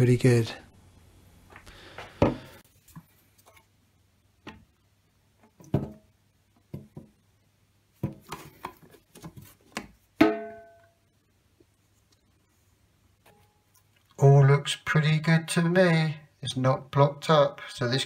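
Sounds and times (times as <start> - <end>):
metal sink ringing: 10.2 - 10.9.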